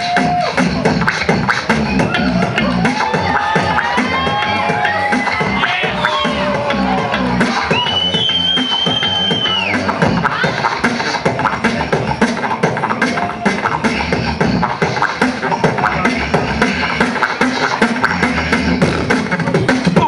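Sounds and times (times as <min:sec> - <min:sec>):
person beatboxing into a microphone: 0:00.0 - 0:20.0.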